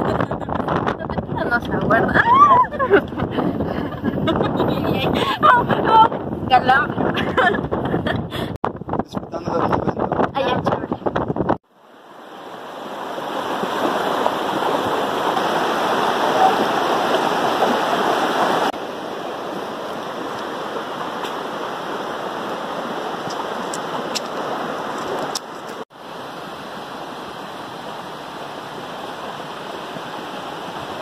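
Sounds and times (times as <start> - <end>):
stream water flowing: 11.7 - 31.0.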